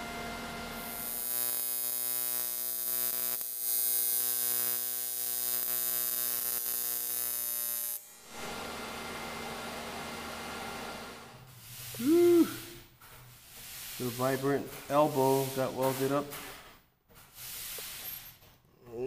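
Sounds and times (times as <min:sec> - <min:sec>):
welding arc buzzing and hissing: 0:00.6 - 0:09.5, 0:10.9 - 0:16.5.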